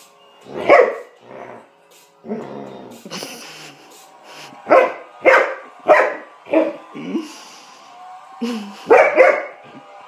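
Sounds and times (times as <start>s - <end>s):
dog barking: 0.7s - 1.1s, 4.7s - 6.8s, 8.9s - 9.6s.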